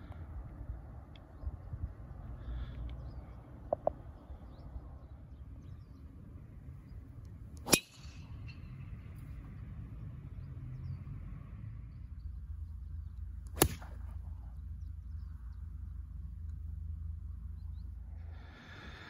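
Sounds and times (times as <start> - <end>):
low steady rumble: 0.0 - 19.0
golf club striking ball: 7.6 - 8.6, 13.5 - 14.2.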